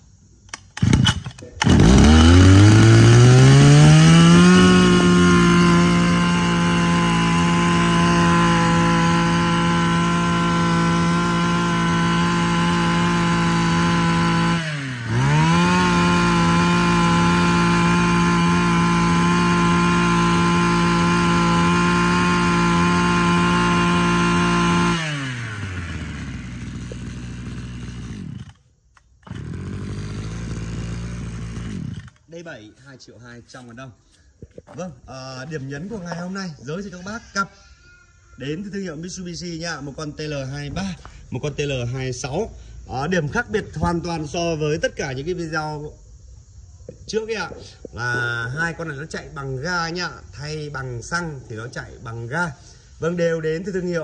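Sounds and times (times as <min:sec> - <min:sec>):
brushcutter engine: 0:00.8 - 0:32.3.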